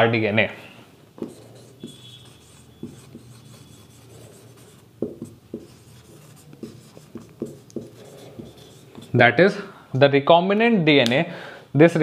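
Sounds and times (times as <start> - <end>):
marker writing on whiteboard: 1.2 - 9.5.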